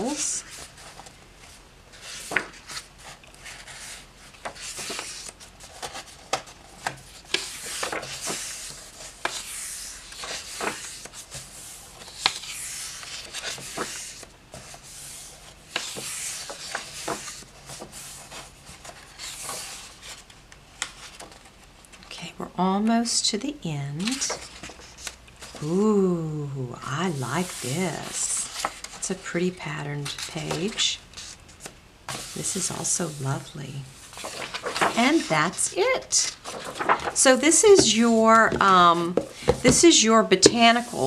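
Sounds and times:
paper pages turning: 0.0 - 22.0, 24.0 - 25.8, 26.8 - 29.3, 29.9 - 41.0
hands rubbing paper: 26.8 - 29.0, 34.1 - 41.0.

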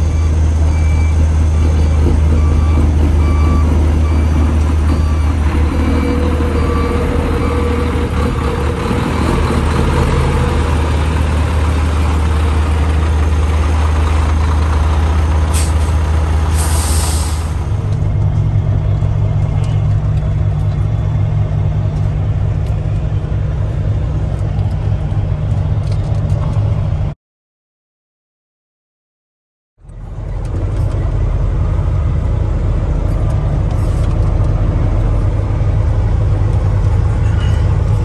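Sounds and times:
truck diesel engine running: 0.0 - 27.1, 29.8 - 38.0
air brakes hissing: 15.5 - 17.7.

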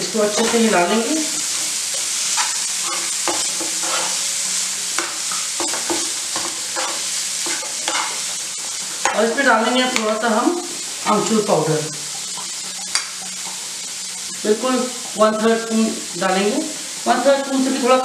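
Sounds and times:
food sizzling in hot oil: 0.0 - 18.0
metal spoon scraping pan: 1.9 - 4.3, 5.0 - 10.0.

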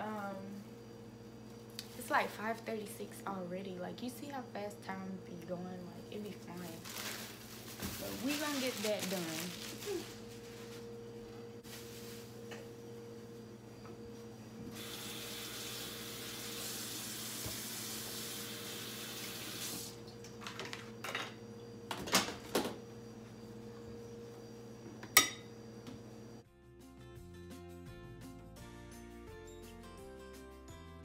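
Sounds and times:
kitchen tap running: 14.8 - 20.0.

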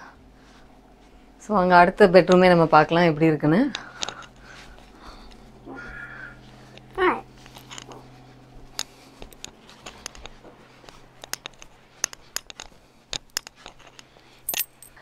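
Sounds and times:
faint low hum: 0.0 - 15.0
footsteps and handling clicks: 6.6 - 15.0.

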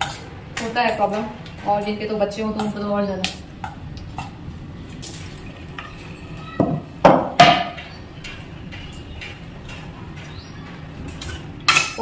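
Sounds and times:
sharp ringing knocks: 6.6 - 10.5
utensils clinking against cookware: 7.4 - 12.0.

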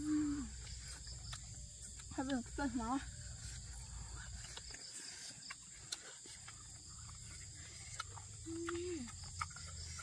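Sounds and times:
night insects droning: 0.0 - 10.0.

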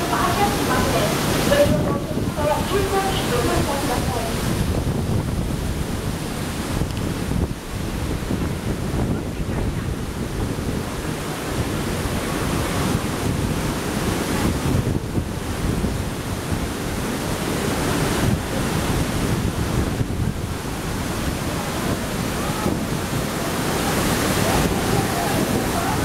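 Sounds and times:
rain rushing: 0.0 - 26.0
wind gusting across microphone: 0.0 - 26.0.

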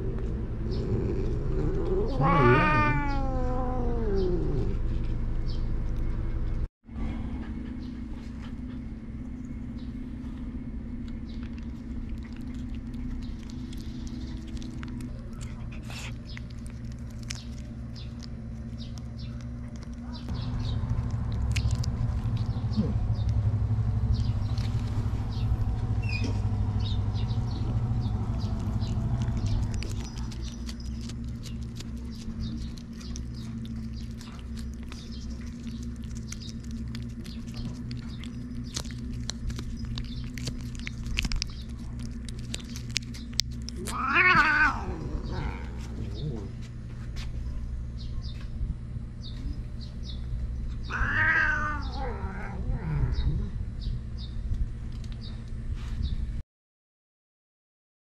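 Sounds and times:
low hum: 0.0 - 56.4
low rumble: 0.0 - 56.4
cats licking wet clicks: 11.4 - 23.3, 27.5 - 44.0.

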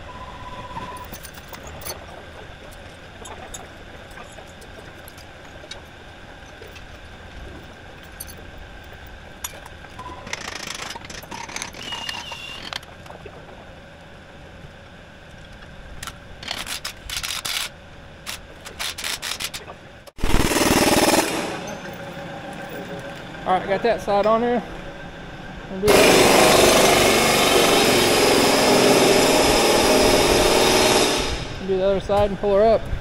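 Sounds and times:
pneumatic impact wrench hammering: 10.2 - 12.8, 20.2 - 21.9, 25.9 - 31.6.

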